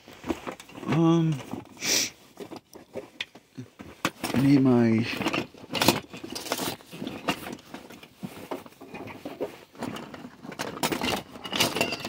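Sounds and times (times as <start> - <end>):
hand tools clinking: 9.8 - 12.0.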